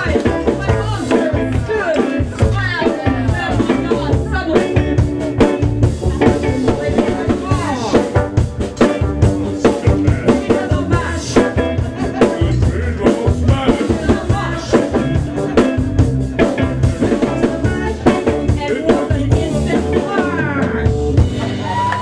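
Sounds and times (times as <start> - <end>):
live band playing: 0.0 - 22.0.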